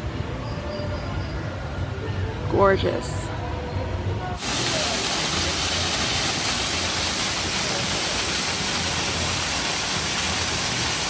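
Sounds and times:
waterfall pouring over rocks: 4.4s - 11.0s.

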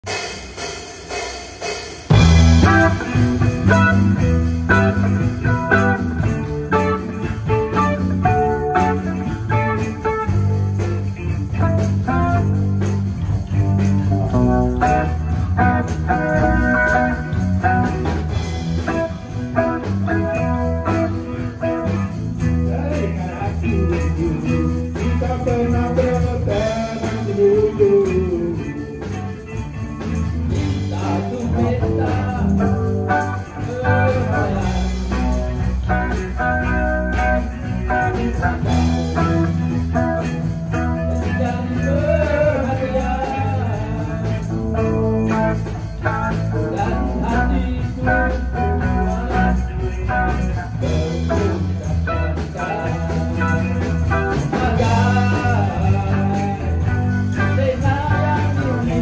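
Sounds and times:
electric guitars playing blues: 2.0s - 59.0s
low bass line: 2.1s - 59.0s.

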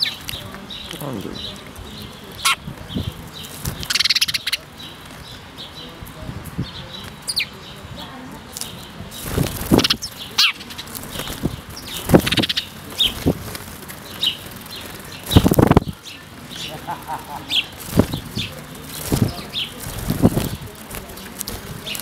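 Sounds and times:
sparrows fluttering wings: 0.0s - 22.0s
high bird chirps: 2.4s - 5.4s, 8.6s - 13.3s.

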